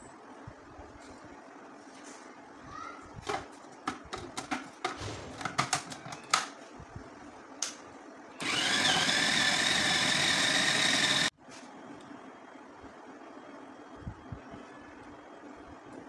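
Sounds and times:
food processor motor running: 8.4 - 11.3.

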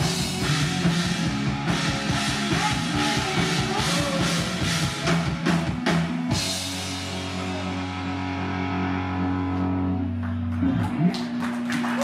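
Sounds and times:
drum and cymbal hits: 0.0 - 8.3
live rock band: 0.0 - 12.0.

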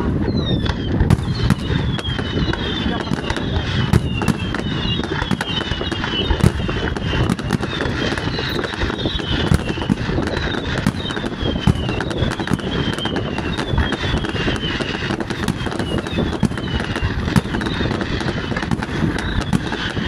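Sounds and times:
fireworks bangs and crackles: 0.0 - 20.0
rumble of bursting shells: 0.0 - 20.0
high falling whistles: 0.2 - 18.5, 19.1 - 20.0.

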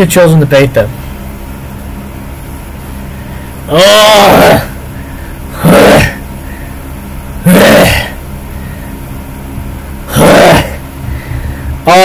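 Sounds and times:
man gagging into microphone: 5.5 - 6.2, 7.4 - 8.2, 10.1 - 10.8.

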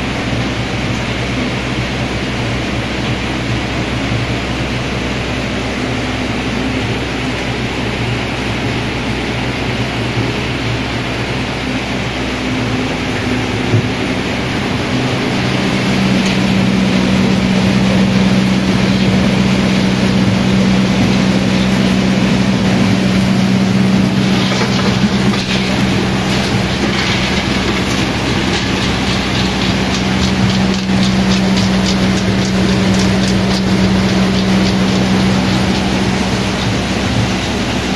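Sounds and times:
motor hum: 12.1 - 37.9
rattling rush of pods being shelled: 14.6 - 37.7
kernels dropping into metal bucket: 23.0 - 36.8.

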